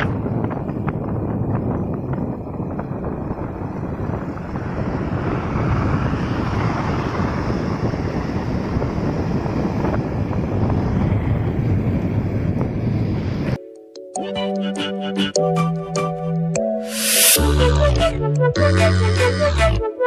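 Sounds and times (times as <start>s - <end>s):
wind rushing over microphone: 0.0s - 13.6s
road noise: 0.2s - 13.6s, 16.9s - 17.4s.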